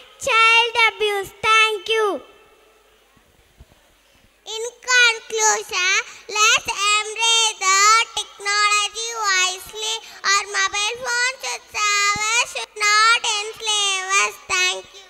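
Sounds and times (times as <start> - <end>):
child singing through microphone: 4.6 - 15.0.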